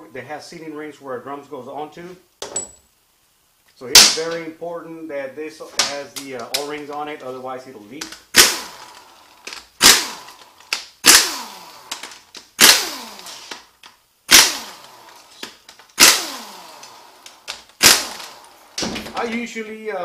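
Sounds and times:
impact wrench bursts: 8.1 - 19.3.

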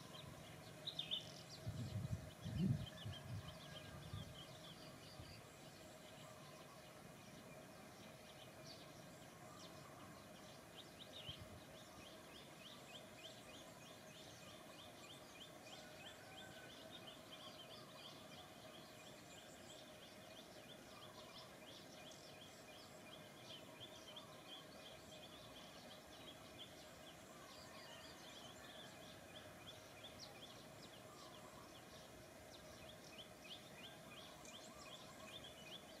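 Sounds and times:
low steady hum: 0.0 - 36.0
small birds chirping: 0.0 - 36.0.

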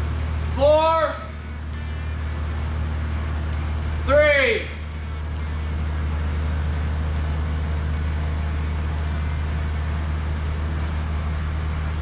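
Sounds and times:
tractor engine droning: 0.0 - 12.0.

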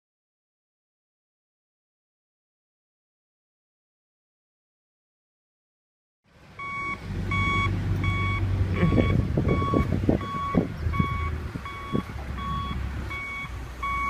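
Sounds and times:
diesel engine rumble: 6.3 - 14.0
reversing alarm beeping: 6.6 - 14.0.

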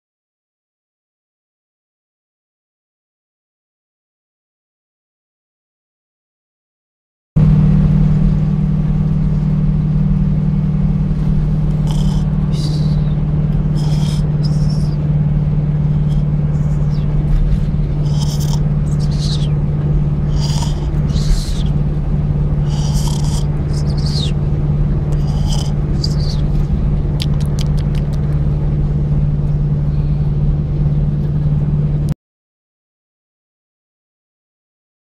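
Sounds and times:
road noise: 7.4 - 32.1
truck engine drone: 7.4 - 32.2
man snoring: 11.1 - 28.3.

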